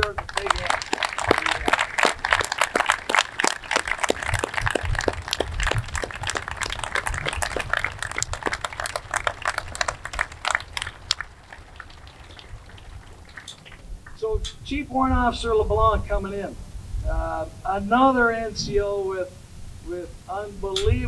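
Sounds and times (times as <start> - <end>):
crowd applauding: 0.0 - 14.2.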